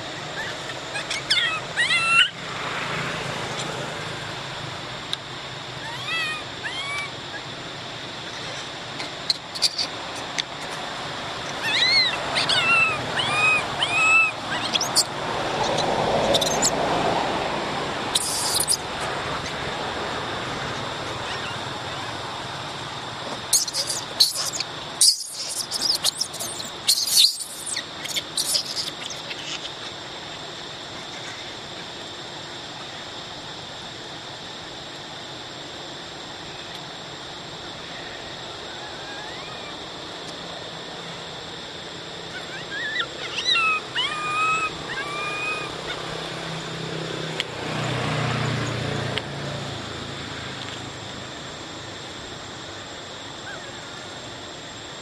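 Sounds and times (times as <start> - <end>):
steady background hiss: 0.0 - 55.0
macaque squeaky calls: 0.2 - 2.4, 5.8 - 7.5, 8.2 - 10.8, 11.4 - 16.8, 18.1 - 19.6, 21.2 - 22.2, 23.4 - 30.0, 30.9 - 31.6, 38.7 - 39.8, 42.3 - 46.0, 53.4 - 53.8.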